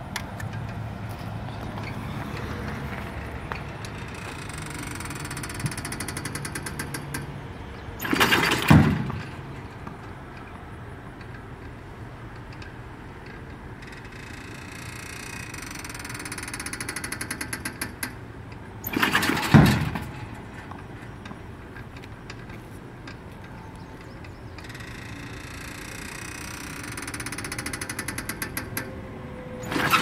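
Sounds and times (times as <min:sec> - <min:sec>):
rapid clicking of chain drive: 0:03.8 - 0:07.3, 0:12.4 - 0:18.2, 0:18.8 - 0:20.2, 0:24.0 - 0:28.9
clattering release with thump: 0:08.0 - 0:10.5, 0:15.9 - 0:28.9.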